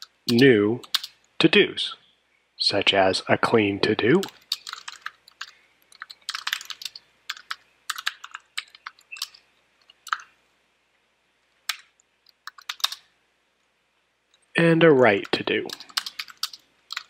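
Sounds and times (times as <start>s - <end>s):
keyboard typing: 0.0s - 1.2s, 4.1s - 10.3s, 11.7s - 13.1s, 15.0s - 17.0s.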